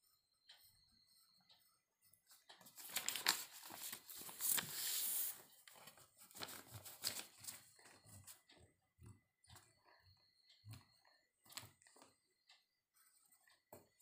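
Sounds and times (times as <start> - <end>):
pencil and eraser rubbing paper: 4.6 - 7.0.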